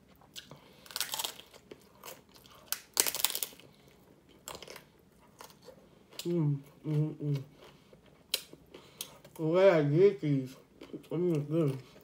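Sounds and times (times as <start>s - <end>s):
taco shell crunching: 0.2s - 6.3s.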